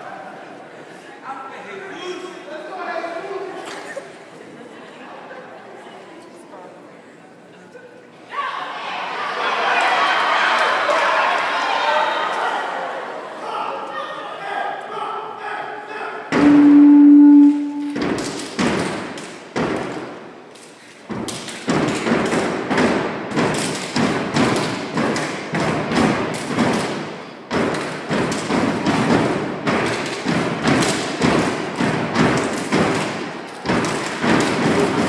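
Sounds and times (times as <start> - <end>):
people clapping: 9.6 - 12.5, 23.4 - 27.0, 27.6 - 35.0
stomping on hollow stage: 16.3 - 20.1
loud held note: 16.4 - 18.1.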